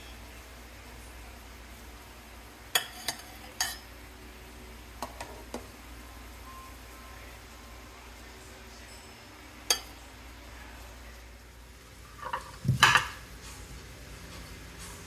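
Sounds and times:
metal spoon clinking against pot: 2.8 - 3.8, 9.7 - 10.0.

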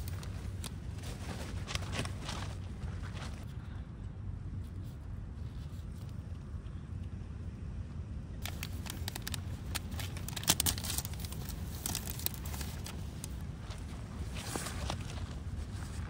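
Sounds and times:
firewood crackling and popping: 8.4 - 15.2.

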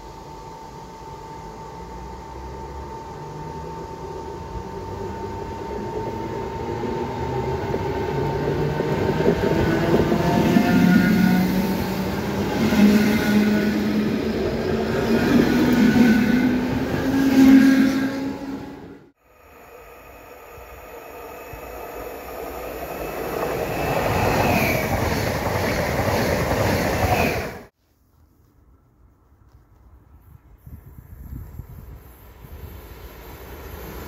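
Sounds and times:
steady high whine: 0.0 - 25.6
electric train motor hum: 0.0 - 26.6.

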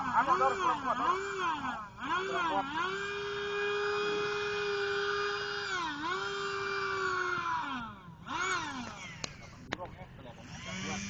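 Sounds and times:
electric motor whining: 0.0 - 9.8, 10.4 - 11.0.

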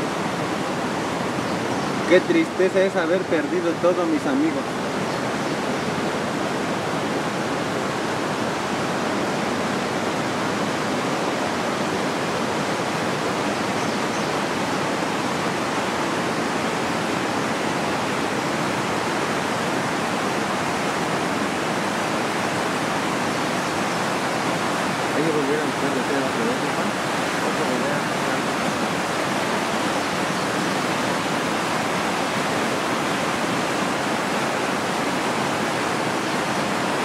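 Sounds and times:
river rushing: 0.0 - 37.0.

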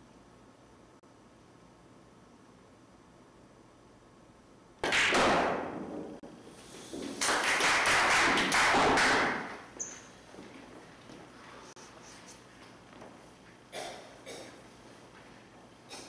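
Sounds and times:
sharp crack of pool break: 4.8 - 6.2, 7.1 - 9.6.

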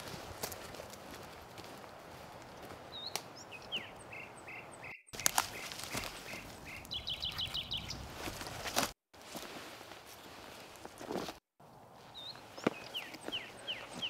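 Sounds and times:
dry leaves crunching and rustling: 0.0 - 3.2, 5.2 - 14.0
small bird singing: 2.9 - 8.1, 12.1 - 14.0.

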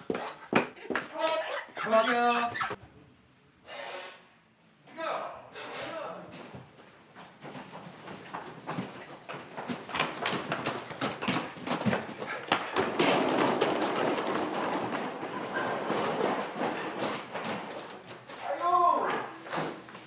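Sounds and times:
footsteps on tiled floor: 0.0 - 2.8, 6.3 - 20.0
suitcase wheels clacking: 7.1 - 18.4.

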